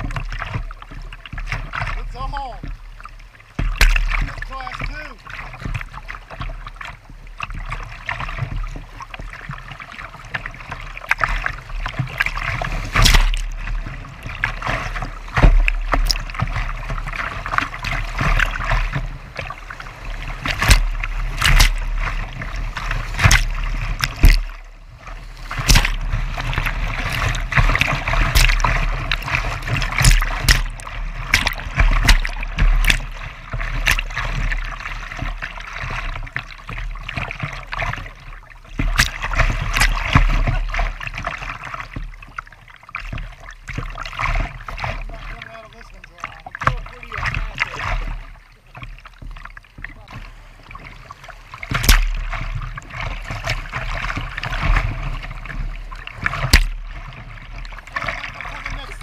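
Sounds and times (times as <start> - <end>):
waves slapping hull: 0.0 - 59.0
whitewater rushing: 57.9 - 59.0.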